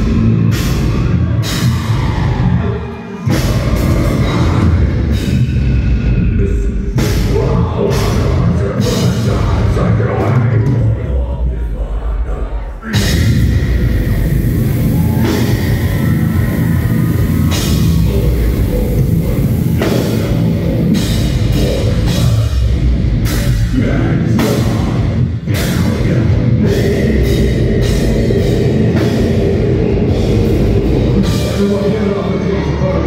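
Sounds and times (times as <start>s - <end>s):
pounding drums: 0.0s - 5.8s
heavy metal band playing: 0.0s - 33.0s.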